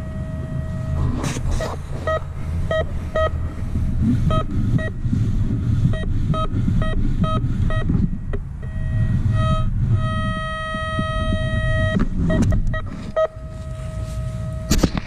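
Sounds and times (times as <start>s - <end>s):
constant low rumble: 0.0s - 15.0s
metal detector short beeps: 2.1s - 3.3s, 8.6s - 14.9s.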